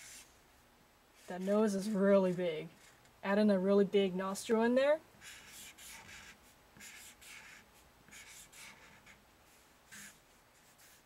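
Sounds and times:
marker strokes on paper: 0:00.0 - 0:00.4, 0:01.2 - 0:03.0, 0:05.2 - 0:11.0.

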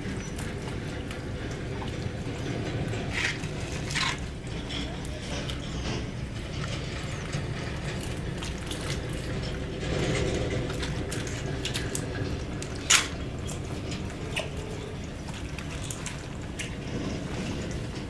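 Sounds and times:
small wet clicks: 0:00.0 - 0:18.0
hands squelching through wet mud: 0:10.6 - 0:18.0.

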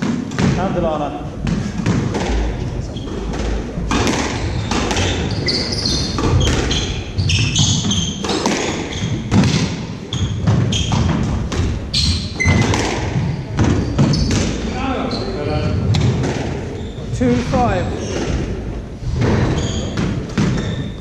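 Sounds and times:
squash ball striking rackets: 0:01.4 - 0:14.6, 0:15.9 - 0:16.8, 0:19.4 - 0:21.0
shoes squeaking on wooden floor: 0:01.4 - 0:21.0.

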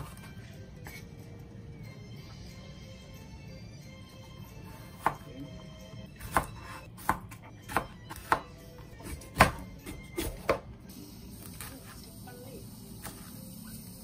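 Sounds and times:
knife chopping peppers on board: 0:04.7 - 0:05.3, 0:06.2 - 0:10.7.

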